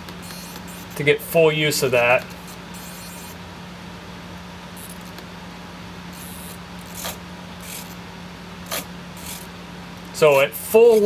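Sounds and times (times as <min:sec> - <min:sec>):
steady low hum: 0:00.0 - 0:11.0
servo whirring: 0:06.1 - 0:08.0, 0:08.6 - 0:09.5.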